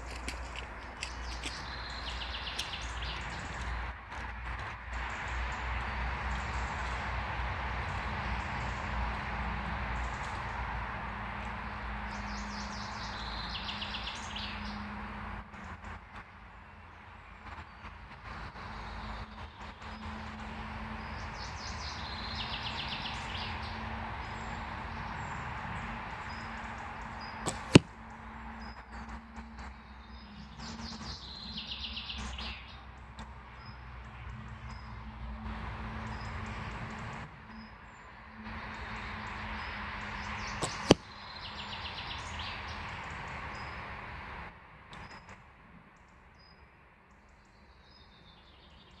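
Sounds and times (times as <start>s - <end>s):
birds chirping: 0.0s - 3.9s, 12.0s - 15.0s, 16.5s - 34.9s, 36.0s - 43.9s
arrow striking foam target: 27.5s - 28.0s, 40.6s - 41.0s.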